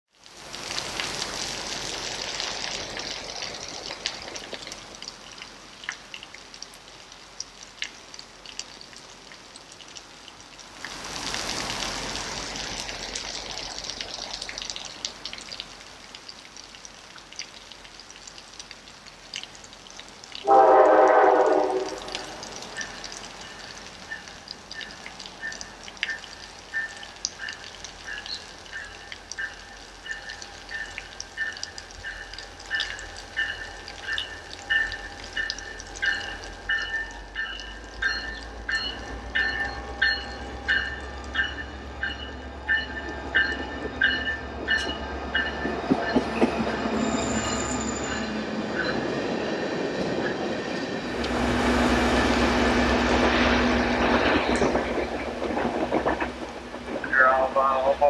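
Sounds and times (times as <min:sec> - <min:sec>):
rain falling and dripping: 0:00.0 - 0:58.0
locomotive horn blast: 0:20.4 - 0:22.4.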